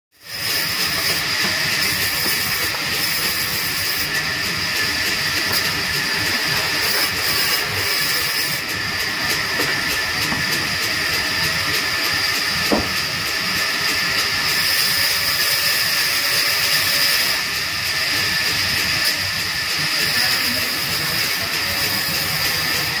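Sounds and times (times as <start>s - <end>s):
band saw cutting timber: 0.2s - 23.0s
short knock: 12.7s - 13.0s.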